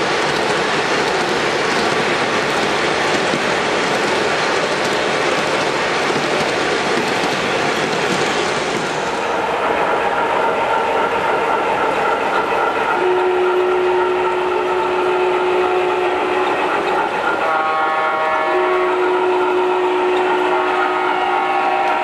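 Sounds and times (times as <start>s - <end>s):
steam engine running sound: 0.0s - 22.0s
steam whistle blasts: 12.9s - 22.0s.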